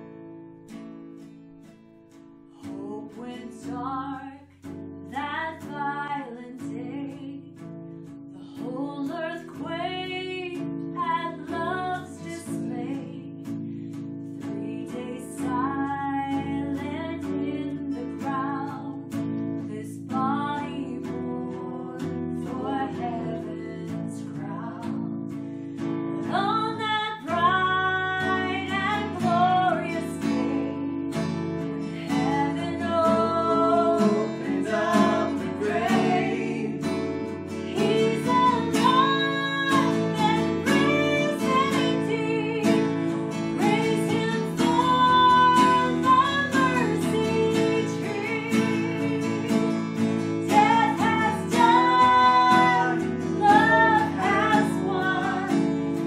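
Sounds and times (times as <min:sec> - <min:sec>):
acoustic guitar strumming: 0:00.0 - 0:56.0
person singing: 0:31.7 - 0:49.7, 0:50.4 - 0:56.0.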